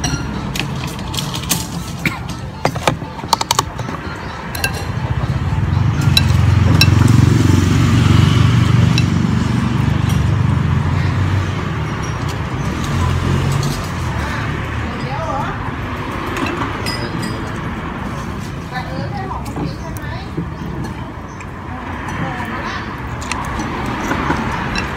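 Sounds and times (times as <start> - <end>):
spoon and chopsticks clinking bowl: 0.0 - 5.3, 6.0 - 7.1, 16.3 - 18.4, 23.1 - 24.9
low engine rumble: 0.0 - 24.9.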